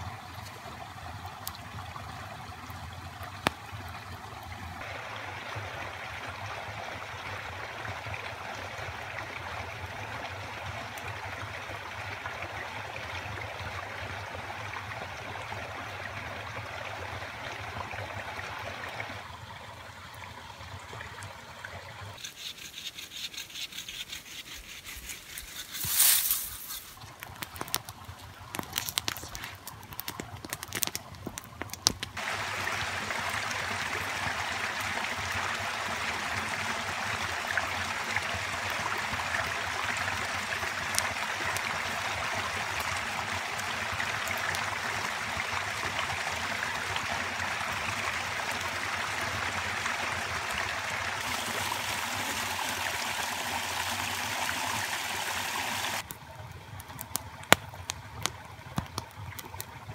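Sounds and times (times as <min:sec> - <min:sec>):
stream water flowing: 0:00.0 - 0:59.9
rustles: 0:22.2 - 0:32.1.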